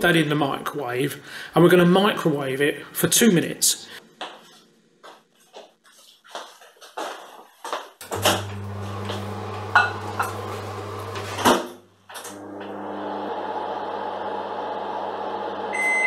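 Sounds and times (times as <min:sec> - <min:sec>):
bowl clunking: 0:09.1 - 0:10.5.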